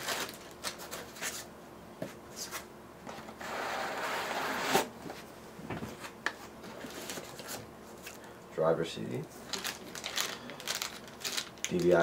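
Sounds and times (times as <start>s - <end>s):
foam scraping against box: 3.4s - 4.9s.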